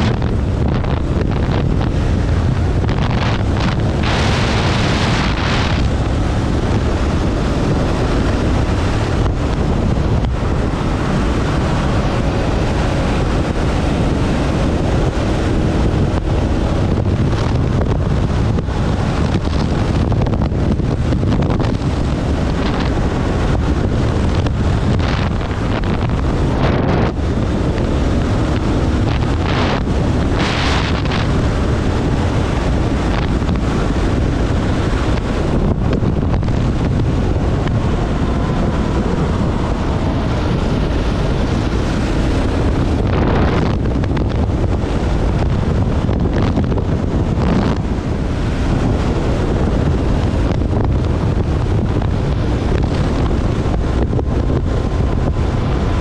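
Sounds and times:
motorcycle engine running: 0.0s - 56.0s
wind rush on microphone: 0.0s - 56.0s.

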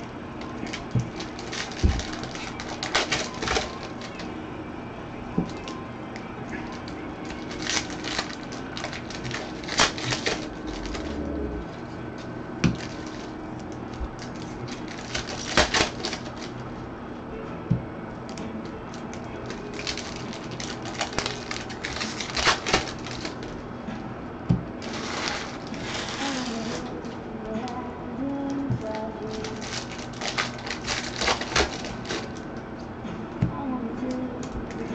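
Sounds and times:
trading cards snapping and rustling: 0.4s - 4.3s, 6.6s - 11.2s, 12.6s - 16.7s, 18.2s - 23.6s, 28.8s - 32.9s.

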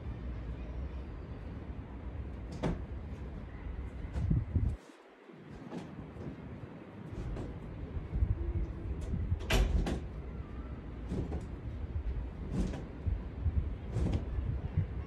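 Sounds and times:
wind buffeting microphone: 3.7s - 4.8s, 5.9s - 15.0s.

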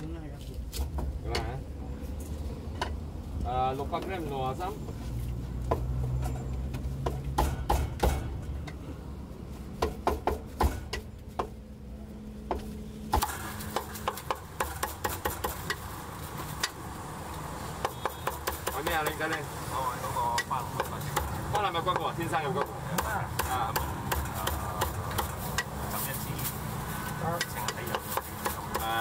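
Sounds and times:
cleaver chopping on wooden block: 7.0s - 8.3s, 9.8s - 11.6s, 12.5s - 15.8s, 17.8s - 19.2s, 20.3s - 25.8s, 27.4s - 29.0s.

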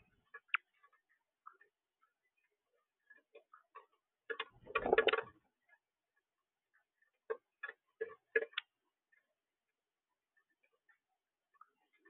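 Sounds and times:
bird pecking at feeder tray: 4.3s - 5.2s.

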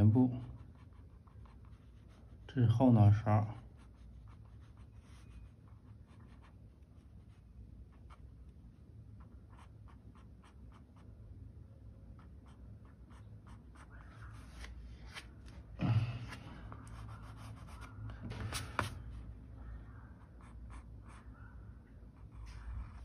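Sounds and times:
pencil scratching on paper: 0.3s - 8.2s, 9.2s - 11.1s, 12.2s - 14.6s, 16.9s - 19.1s, 20.2s - 21.3s, 22.2s - 23.0s.

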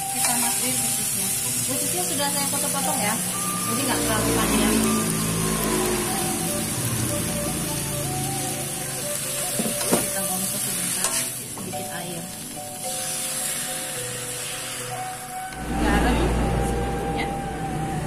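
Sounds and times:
food sizzling in oil: 0.0s - 17.9s
metal spatula scraping wok: 9.5s - 11.7s.

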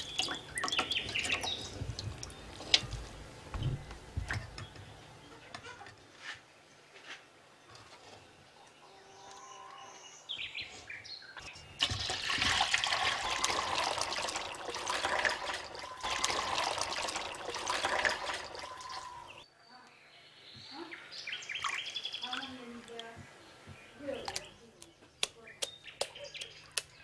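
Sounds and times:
buttermilk pouring and splashing: 0.0s - 3.2s, 11.8s - 19.4s.

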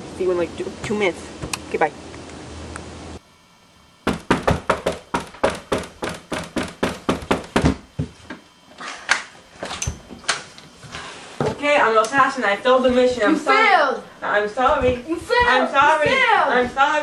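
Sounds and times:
rapid sharp knocking: 4.1s - 7.8s.

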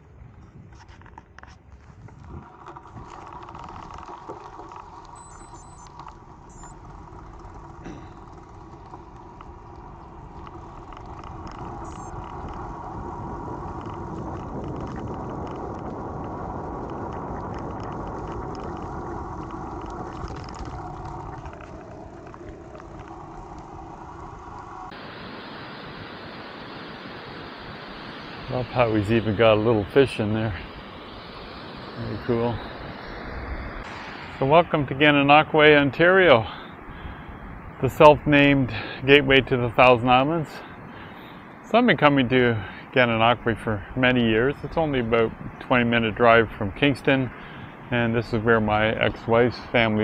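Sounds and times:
engine running: 2.4s - 37.2s.

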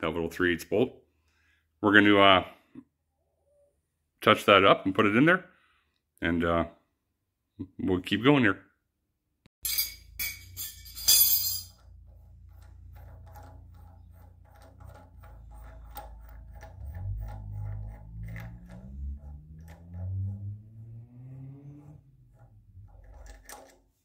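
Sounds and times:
metal tool clinks: 9.6s - 11.8s
low rising tone: 16.0s - 23.3s.

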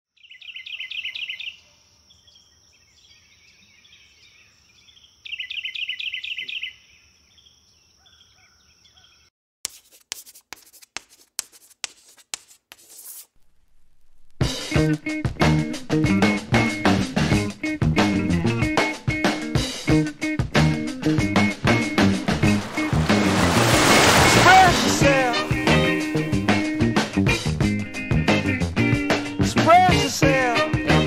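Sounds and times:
birds trilling chirps: 0.2s - 9.3s
chalk scratching on chalkboard: 9.7s - 13.3s.

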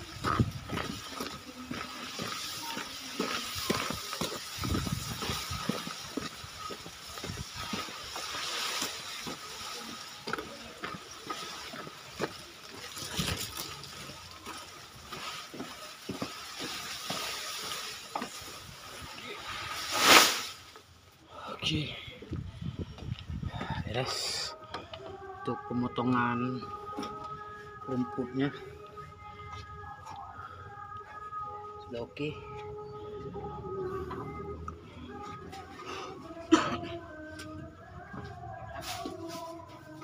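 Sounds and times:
leaves scraping against camera: 0.0s - 20.9s
grass leaves rustling and crackling: 0.0s - 21.0s, 38.7s - 40.0s.

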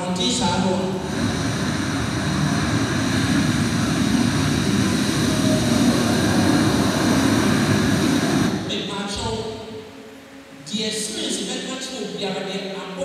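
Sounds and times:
surf rushing up beach: 0.0s - 8.9s.

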